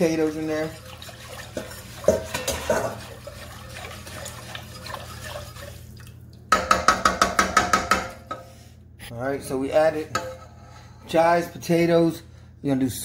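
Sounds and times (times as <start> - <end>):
whisk clanking on metal pot: 0.0 - 5.8, 6.5 - 8.5
whisk sloshing through thick soup: 0.0 - 6.2.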